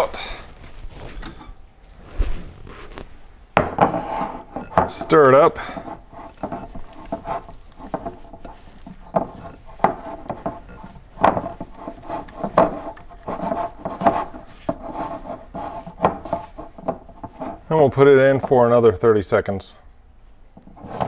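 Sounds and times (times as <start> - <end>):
spatula scraping sticky dough: 3.8 - 18.7, 20.6 - 21.0.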